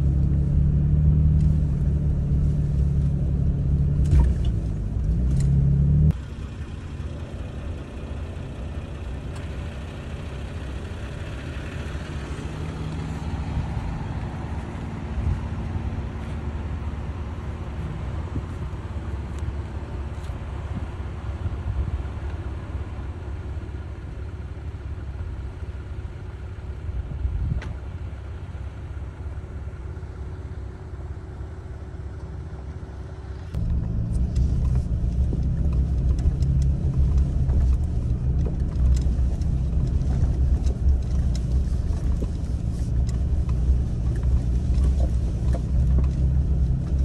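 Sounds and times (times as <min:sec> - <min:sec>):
engine and tyres drone in cab: 0:00.0 - 0:47.0
low rumble of engines: 0:00.0 - 0:47.0
light clicks and rattles: 0:33.4 - 0:47.0.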